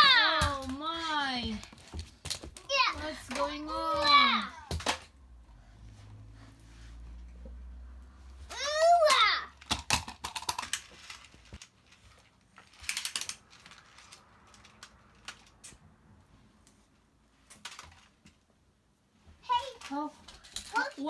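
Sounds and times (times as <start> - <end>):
plastic toys clicking and knocking: 0.0 - 5.2, 8.5 - 15.8, 17.4 - 18.4, 19.5 - 21.0.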